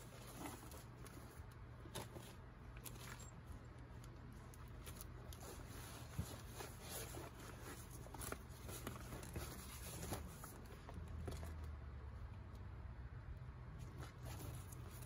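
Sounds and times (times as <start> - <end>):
backpack fabric rustling: 0.0 - 1.3, 5.0 - 10.8
low steady hum: 0.0 - 15.0.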